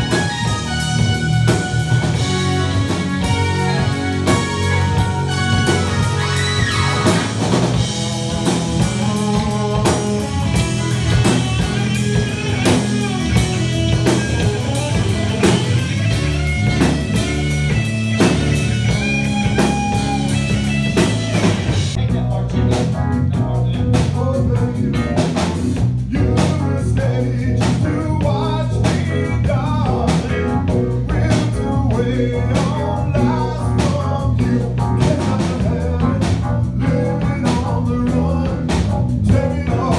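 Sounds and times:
drum kit: 0.0 - 39.9
electric bass: 0.0 - 39.9
electric guitar: 0.0 - 39.9
keyboards: 0.0 - 39.9
person singing: 8.4 - 14.2, 26.1 - 39.9.

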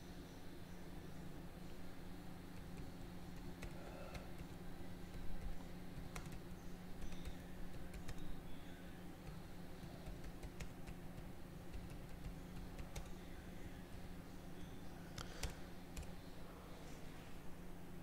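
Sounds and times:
steady low hum: 0.0 - 18.0
typing on a computer keyboard: 2.6 - 6.4, 7.0 - 8.4, 9.2 - 13.2, 15.2 - 16.2.

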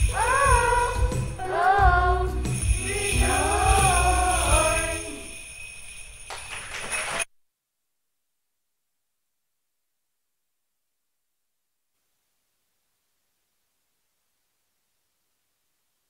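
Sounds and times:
children's choir singing: 0.0 - 5.3
backing track with jingle bells: 0.0 - 7.3.

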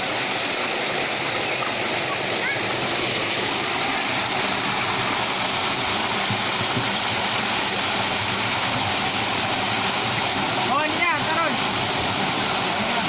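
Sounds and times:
water rushing through sluice gate: 0.0 - 13.0.

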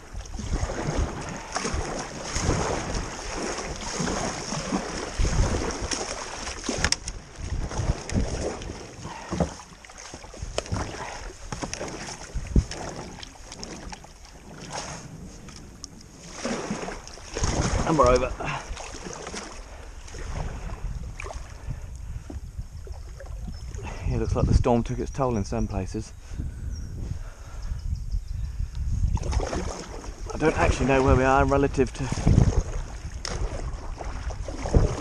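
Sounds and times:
paddle strokes splashing: 0.0 - 24.0, 29.1 - 35.0
branches scraping kayak hull: 0.0 - 24.3, 29.0 - 35.0
wind buffeting microphone: 0.0 - 35.0.

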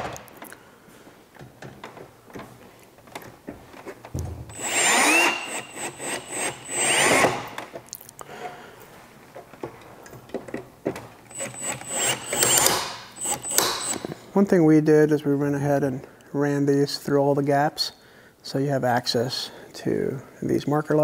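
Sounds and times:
cordless drill driving screws: 4.5 - 7.7, 11.3 - 14.1.

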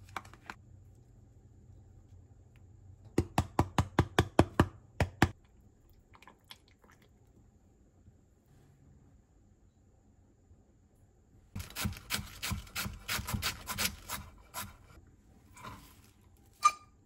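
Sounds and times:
knife chopping on cutting board: 11.6 - 14.8.

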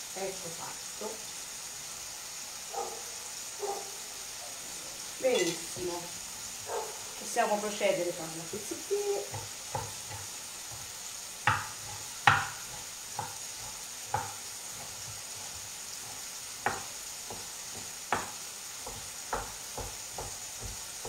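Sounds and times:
food sizzling in frying pan: 0.0 - 21.0
knife chopping on wooden board: 9.3 - 21.0.

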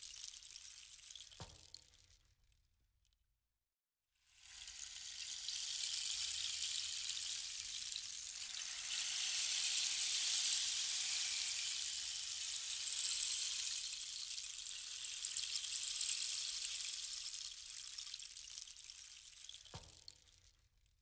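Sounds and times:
high-pitched hiss: 4.4 - 19.8.

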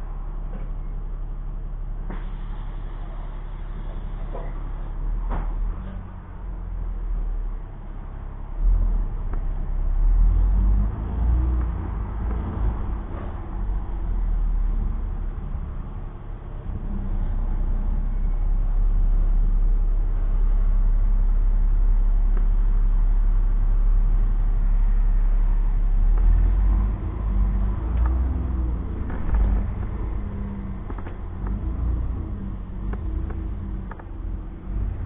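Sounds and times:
bus engine rumble: 0.0 - 35.0
sharp clicks and knocks: 28.9 - 32.1, 32.8 - 34.2.

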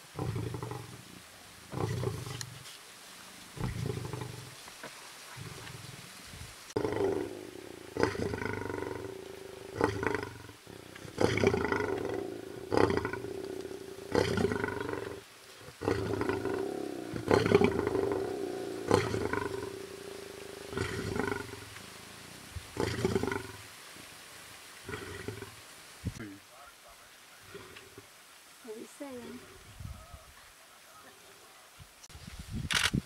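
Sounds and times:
lion roaring: 1.7 - 2.6, 3.6 - 4.5, 6.8 - 21.7, 22.8 - 23.6.

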